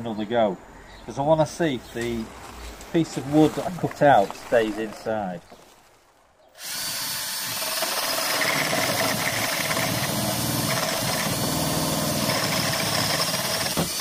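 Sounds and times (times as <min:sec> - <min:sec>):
drill motor whine: 0:06.6 - 0:14.0.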